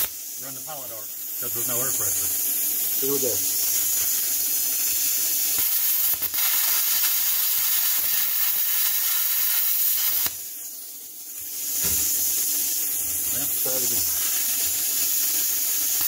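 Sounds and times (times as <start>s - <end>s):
plasma cutter hissing: 0.0s - 16.0s
torch air hiss: 0.0s - 16.0s.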